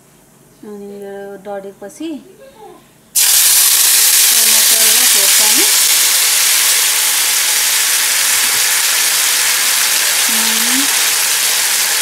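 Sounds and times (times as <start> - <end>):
tomato sizzling in hot oil: 3.2 - 12.0.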